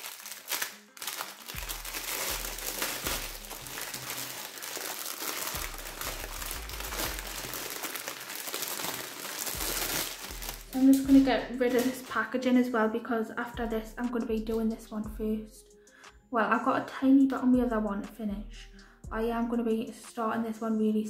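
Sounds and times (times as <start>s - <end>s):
plastic packaging crinkling: 0.0s - 12.2s.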